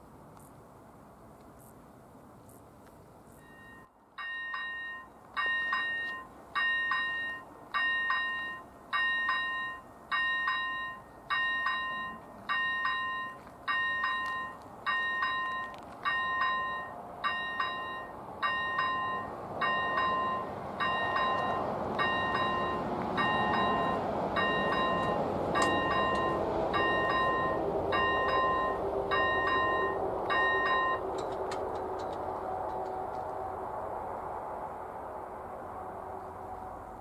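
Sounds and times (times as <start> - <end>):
level crossing warning bell: 3.4 - 33.0
rushing noise: 14.9 - 37.0.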